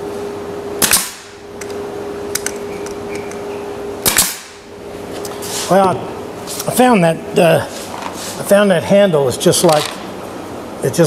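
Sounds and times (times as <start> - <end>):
background hum: 0.0 - 11.0
nail gun firing: 0.8 - 1.4, 4.0 - 4.6.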